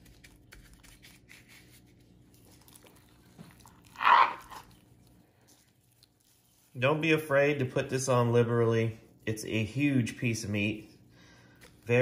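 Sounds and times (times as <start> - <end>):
gloved hand rubbing meat: 3.8 - 10.8.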